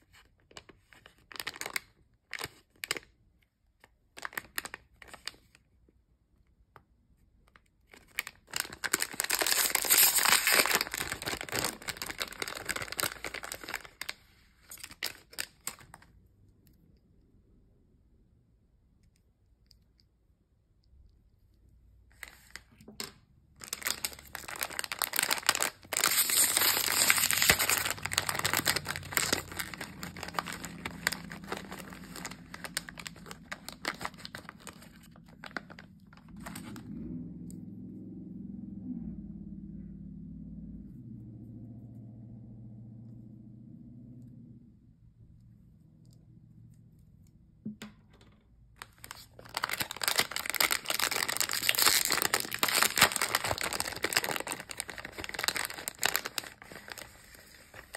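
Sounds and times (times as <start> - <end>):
foil bag tearing and crinkling: 1.0 - 3.0, 8.0 - 16.0, 23.6 - 36.8, 48.8 - 57.9.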